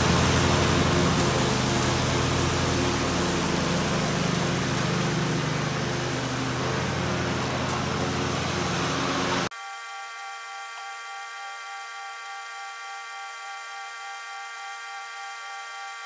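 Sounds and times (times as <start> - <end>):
lawn mower engine running: 0.0 - 9.5.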